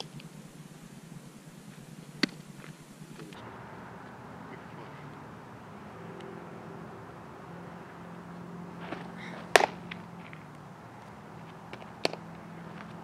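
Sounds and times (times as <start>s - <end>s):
steady low hum: 0.0s - 13.0s
softball smacking into mitt: 8.8s - 10.4s, 11.7s - 13.0s.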